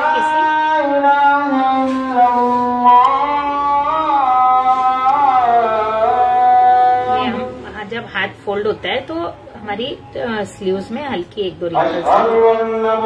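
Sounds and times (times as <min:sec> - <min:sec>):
slow melody of sliding notes: 0:00.0 - 0:07.6.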